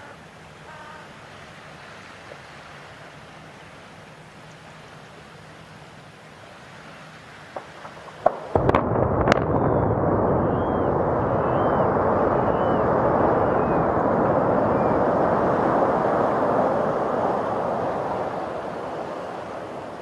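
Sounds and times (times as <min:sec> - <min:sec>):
sharp explosive blasts: 0:07.6 - 0:20.0
rumble of collapsing buildings: 0:07.8 - 0:20.0.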